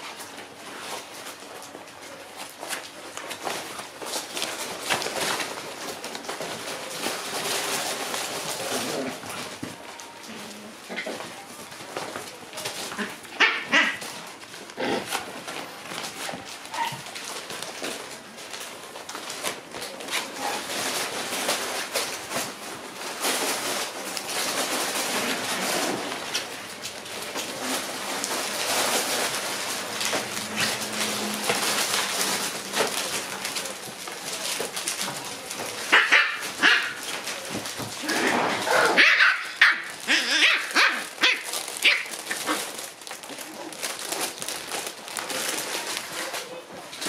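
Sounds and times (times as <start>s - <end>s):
puppies scuffling and rustling: 0.0s - 47.0s
puppies yipping and barking: 35.9s - 37.1s.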